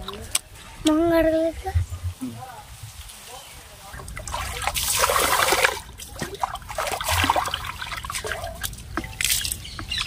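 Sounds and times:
water pouring and splashing: 0:02.8 - 0:10.0.

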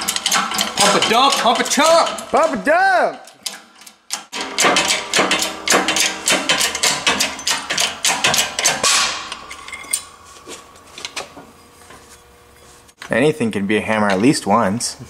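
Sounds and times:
metal bar banging on metal: 0:00.0 - 0:10.2.

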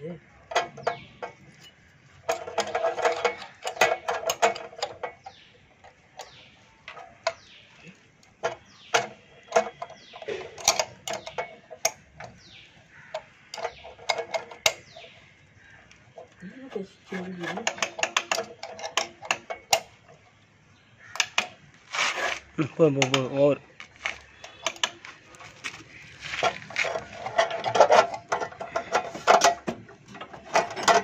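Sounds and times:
spanner clicking on metal: 0:08.2 - 0:15.0, 0:17.4 - 0:20.1.

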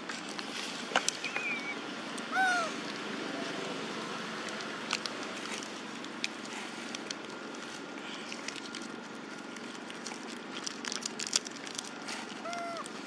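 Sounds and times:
steady outdoor hiss: 0:00.0 - 0:13.0
dry leaves rustling: 0:04.4 - 0:13.0
paper wrapper crackling: 0:04.9 - 0:13.0.

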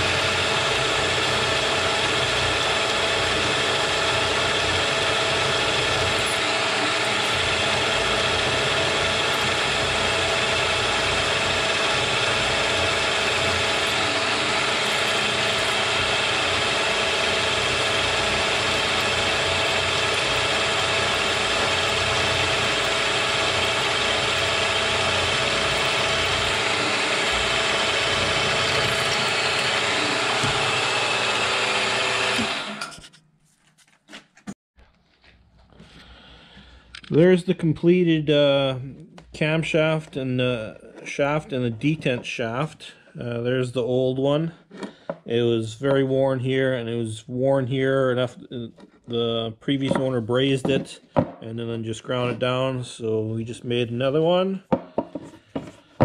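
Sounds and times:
milling machine whine: 0:00.0 - 0:33.0.

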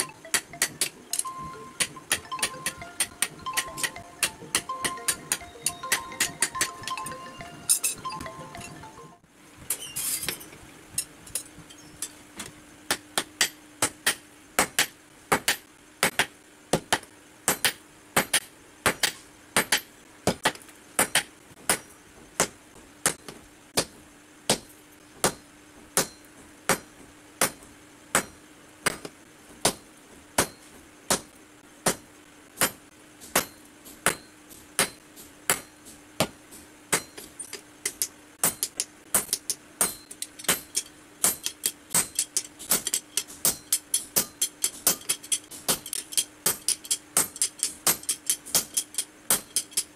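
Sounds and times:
hammer striking hot steel on anvil: 0:12.9 - 0:23.9, 0:24.5 - 0:29.8, 0:30.4 - 0:32.0, 0:32.6 - 0:49.9.

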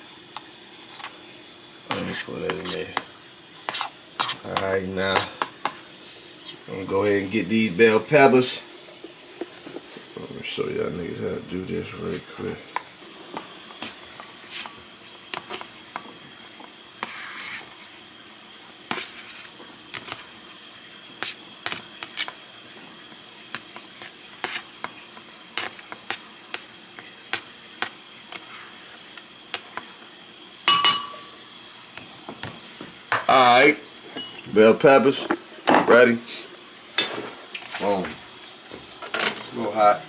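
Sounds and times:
clink on ceramic bowl: 0:30.7 - 0:31.3, 0:34.1 - 0:34.5.

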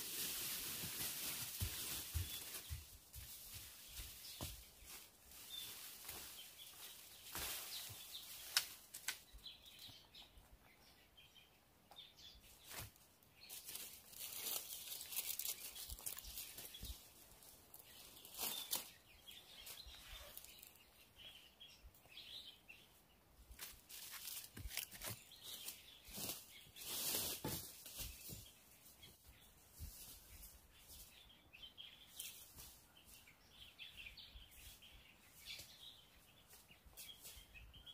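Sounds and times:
rustling and scraping: 0:00.0 - 0:09.3, 0:23.5 - 0:31.1
faint bird chirps: 0:13.5 - 0:23.1.

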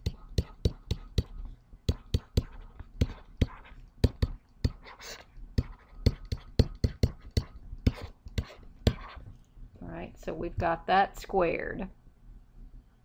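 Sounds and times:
stylus tapping on screen: 0:00.0 - 0:05.0, 0:05.6 - 0:09.2.

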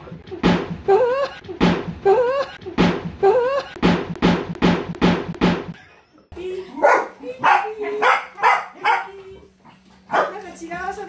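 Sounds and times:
comic background music: 0:00.0 - 0:05.8
drum beat: 0:00.0 - 0:05.8.

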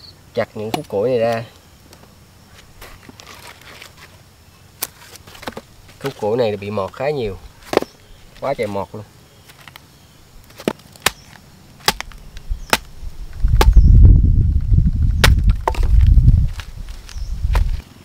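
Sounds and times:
axe chopping log: 0:10.6 - 0:12.9, 0:13.5 - 0:13.8, 0:15.2 - 0:16.0.

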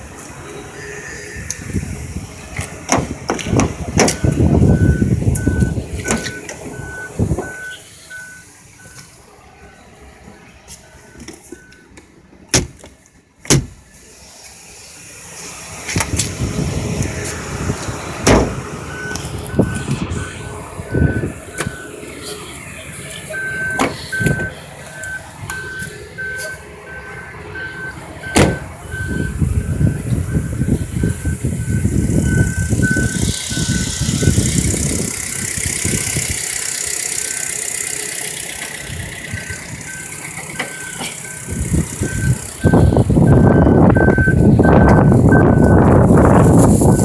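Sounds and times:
electronic warning beeps: 0:04.1 - 0:09.1, 0:23.3 - 0:34.4, 0:39.5 - 0:45.8.

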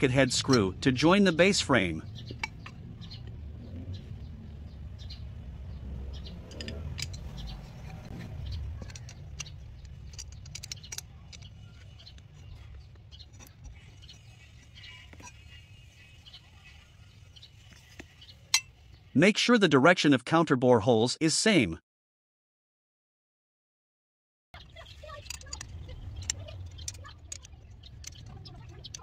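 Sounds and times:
metallic clicks and taps: 0:06.5 - 0:12.3, 0:25.2 - 0:29.0.

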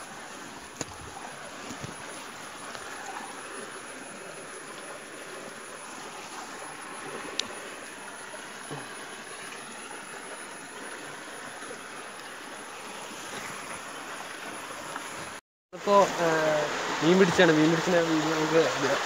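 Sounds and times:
stream water rushing: 0:00.0 - 0:19.0.

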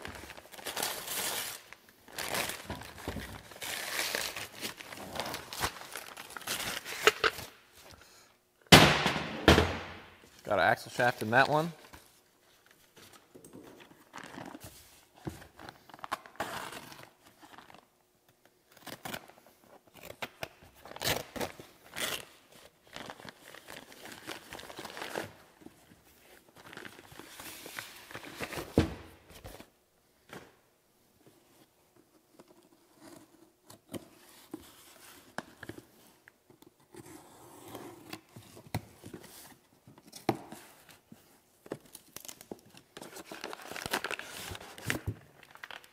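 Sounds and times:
paper crumpling and tearing: 0:41.9 - 0:45.9.

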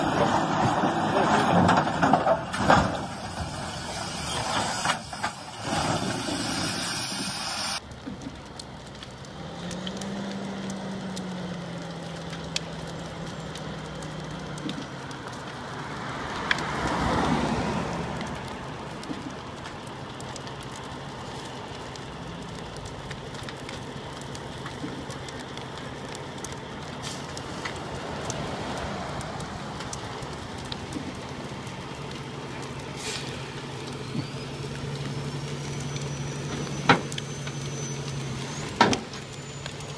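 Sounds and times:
logs crackling and popping: 0:00.0 - 0:39.9
low engine hum: 0:00.0 - 0:39.9
vehicle passing: 0:09.3 - 0:18.8, 0:27.7 - 0:31.8.

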